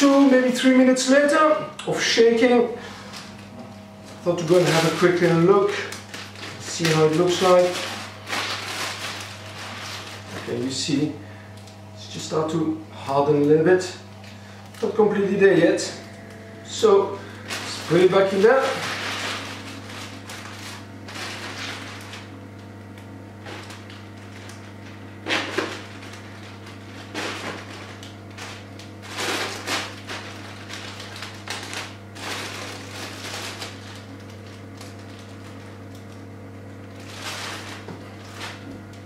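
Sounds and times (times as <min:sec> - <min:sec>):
steady low hum: 0:00.0 - 0:39.0
plastic bags rustling and crinkling: 0:02.8 - 0:11.0, 0:17.1 - 0:39.0.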